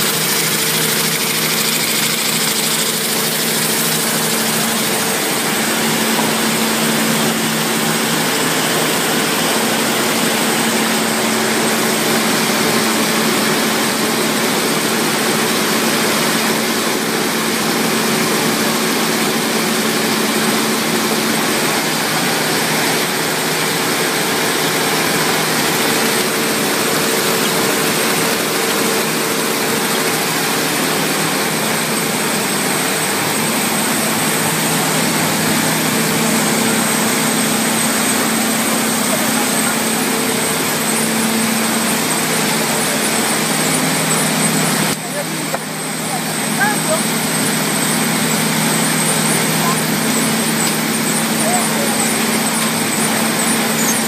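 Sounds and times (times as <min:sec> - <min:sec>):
machine mechanical rush: 0:00.0 - 0:10.6.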